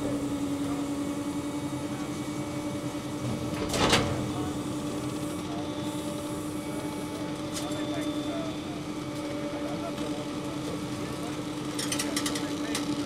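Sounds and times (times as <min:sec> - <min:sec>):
garbage truck humming: 0:00.0 - 0:11.7
hydraulic lifter lowering dumpster: 0:03.0 - 0:05.0.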